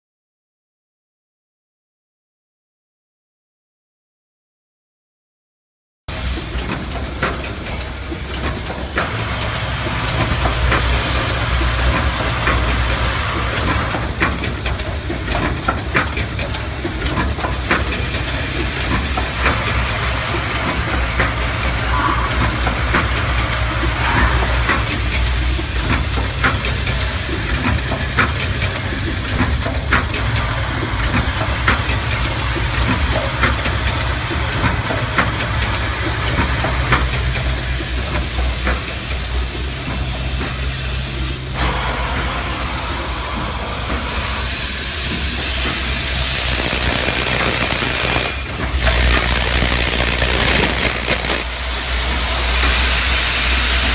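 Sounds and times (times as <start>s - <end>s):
machine clicks and clacks: 6.1s - 41.4s, 45.1s - 53.9s
assembly machine hiss and hum: 6.1s - 53.9s
thin high whine: 21.8s - 25.4s.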